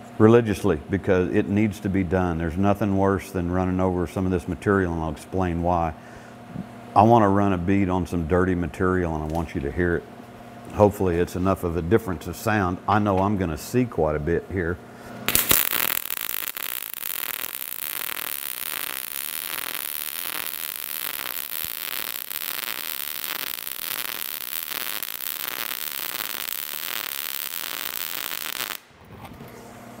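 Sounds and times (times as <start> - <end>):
welding arc crackling: 15.3 - 28.9.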